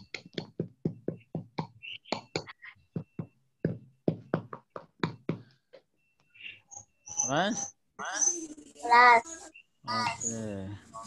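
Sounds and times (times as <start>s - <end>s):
rapid irregular knocks: 0.0s - 5.9s.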